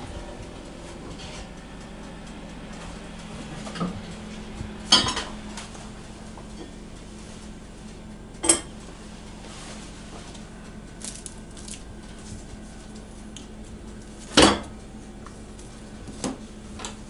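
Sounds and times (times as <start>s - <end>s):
low steady hum: 0.0s - 17.0s
heavy lid clanking: 4.9s - 5.4s
pot clanking on metal grate: 4.9s - 5.4s, 8.4s - 8.8s.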